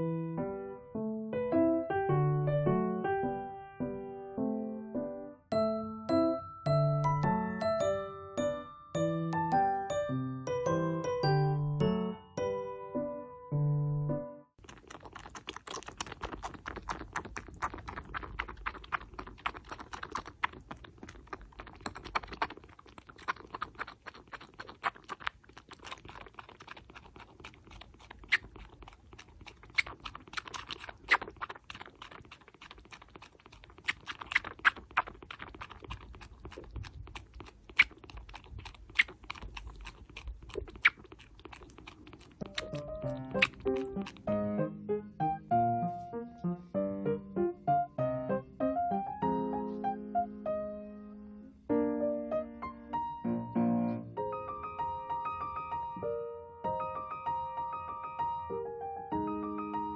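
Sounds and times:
piano music: 0.0s - 14.6s, 42.5s - 59.9s
kitten sucking from a bottle: 14.6s - 44.3s.

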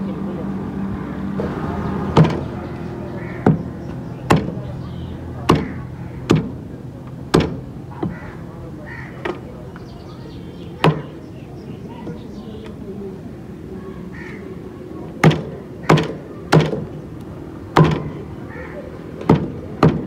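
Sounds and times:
cleaver chopping on wooden block: 5.5s - 6.5s, 15.2s - 16.9s, 17.8s - 18.1s, 19.3s - 20.0s.

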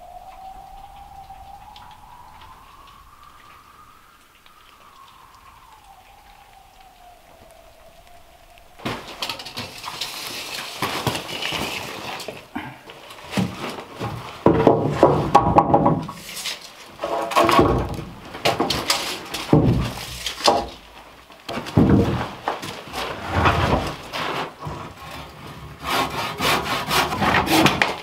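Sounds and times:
stones and gravel scraping: 8.7s - 25.8s.

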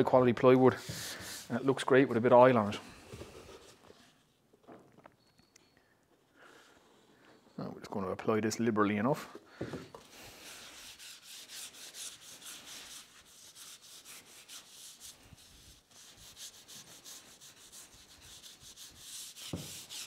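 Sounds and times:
rag wiping wooden board: 0.6s - 2.2s, 10.0s - 20.0s.

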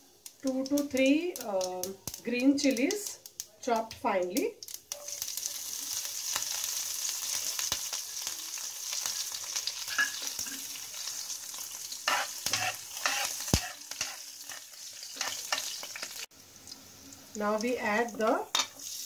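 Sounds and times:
spices sizzling in hot oil: 0.0s - 19.0s
spatula stirring in pan: 5.1s - 16.3s.

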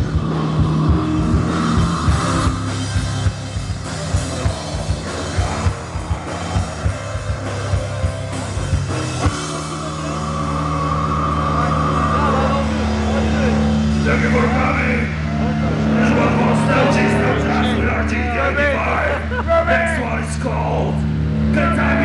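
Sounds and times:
drum kit beating: 0.0s - 17.6s
electric guitar: 0.0s - 20.0s
bass guitar: 0.0s - 22.0s.

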